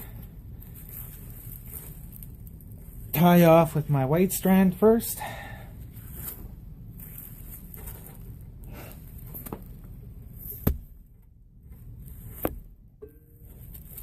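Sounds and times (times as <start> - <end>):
rope being handled: 0.0 - 3.9, 5.8 - 12.7.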